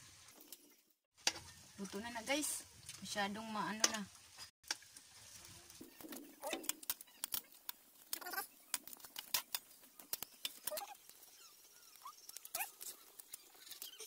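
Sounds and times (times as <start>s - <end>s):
oil crackling and popping: 2.7s - 14.0s.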